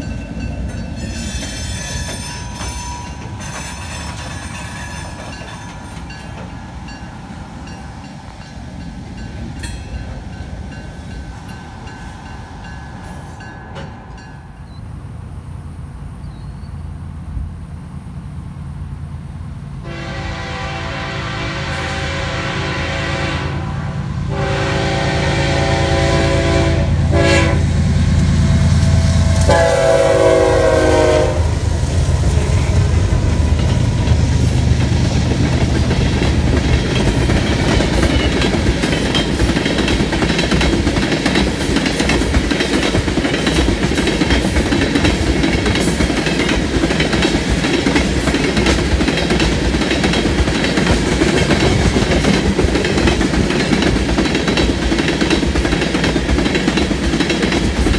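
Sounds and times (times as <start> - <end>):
clickety-clack of rail cars: 0.0 - 14.9, 19.8 - 57.9
rumble of passing locomotives: 0.0 - 57.9
locomotive horn blast: 19.8 - 31.7.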